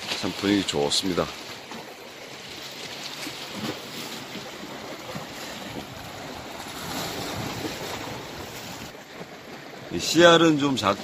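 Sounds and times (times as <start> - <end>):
waves washing on rocky shore: 2.7 - 11.0.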